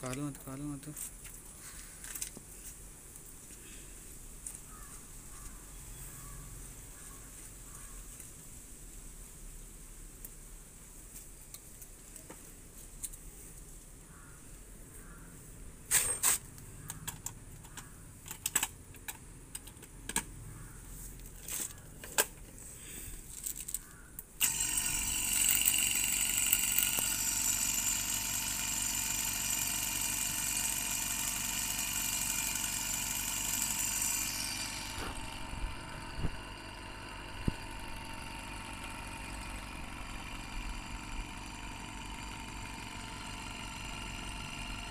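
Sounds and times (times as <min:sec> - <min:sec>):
vacuum pump whining: 0:24.4 - 0:44.9.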